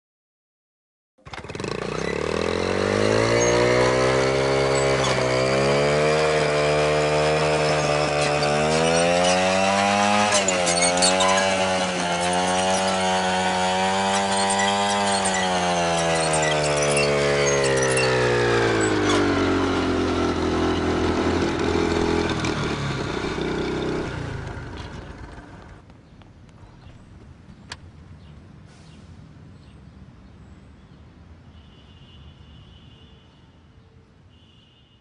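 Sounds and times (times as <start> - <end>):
small motorcycle engine revving: 1.2 - 25.8.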